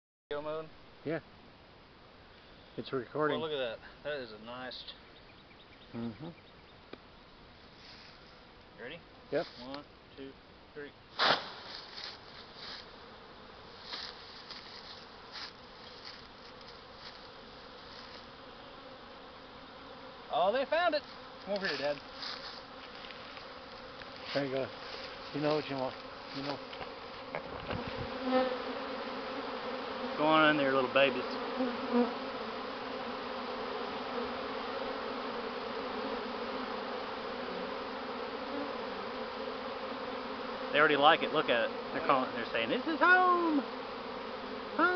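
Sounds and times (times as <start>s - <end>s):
soft rustles: 7.6s - 8.4s, 11.4s - 12.9s, 13.7s - 18.3s, 21.0s - 26.9s
bees buzzing: 11.1s - 44.9s.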